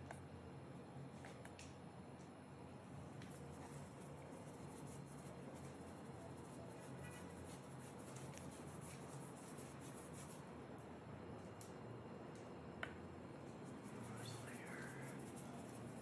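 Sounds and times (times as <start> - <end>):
steady low hum: 0.0 - 16.0
paintbrush brushing on canvas: 3.2 - 10.4, 13.5 - 16.0.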